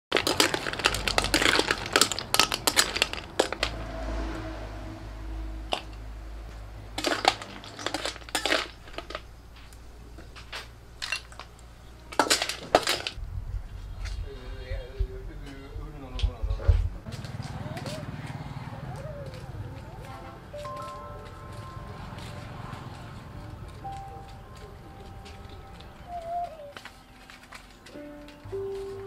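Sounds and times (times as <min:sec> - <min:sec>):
snail shells clattering in a wok: 0:00.1 - 0:03.8, 0:07.0 - 0:09.4, 0:11.0 - 0:13.2.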